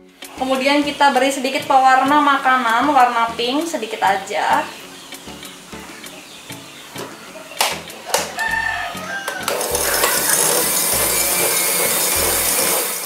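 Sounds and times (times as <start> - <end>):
electric hand mixer whirring: 9.3 - 13.0.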